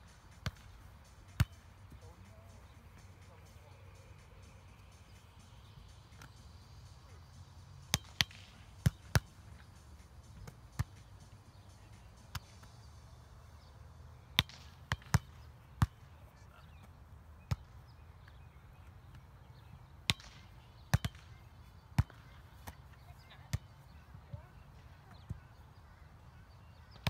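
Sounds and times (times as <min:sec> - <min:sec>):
volleyball slaps: 0:00.4 - 0:00.7, 0:07.9 - 0:09.3, 0:14.4 - 0:16.0, 0:20.1 - 0:21.3.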